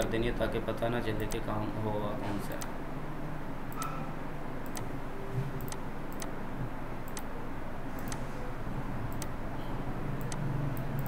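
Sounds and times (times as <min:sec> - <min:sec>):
low room hum: 0:00.0 - 0:11.0
computer mouse clicking: 0:07.0 - 0:07.3, 0:08.0 - 0:08.2, 0:09.1 - 0:09.4.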